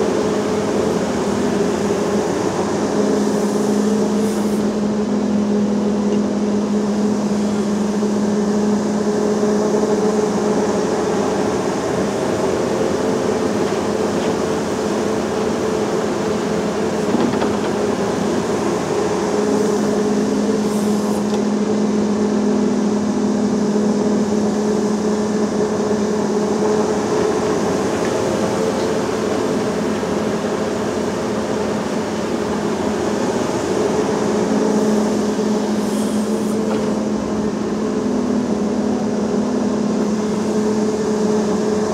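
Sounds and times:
excavator diesel engine droning: 0:00.0 - 0:41.9
soil loading into truck: 0:11.9 - 0:21.9.

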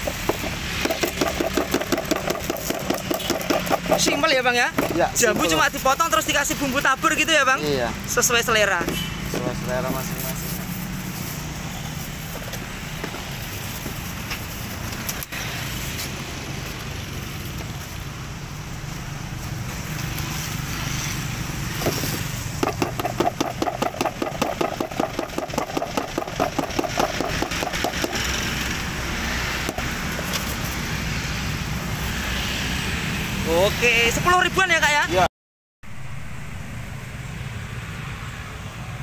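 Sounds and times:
plastic tub rattling: 0:00.0 - 0:05.5, 0:21.8 - 0:28.2
street traffic hum: 0:00.0 - 0:39.0.

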